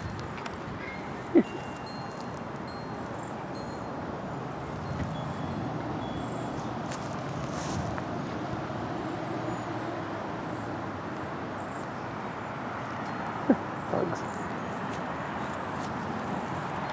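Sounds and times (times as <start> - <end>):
distant road traffic: 0.0 - 16.9.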